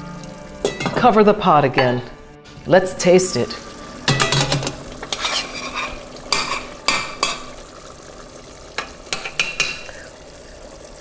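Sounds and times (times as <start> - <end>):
stew simmering: 0.0 - 11.0
metal kitchenware knocking on pot: 0.6 - 1.1, 4.1 - 4.8, 5.7 - 7.5.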